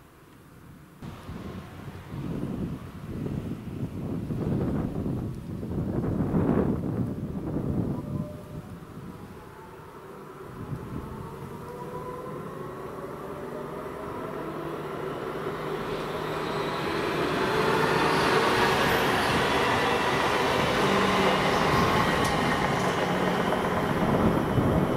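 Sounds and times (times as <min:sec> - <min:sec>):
train wheel and rail noise: 0:01.0 - 0:24.9
electric train motors whining: 0:10.3 - 0:24.9.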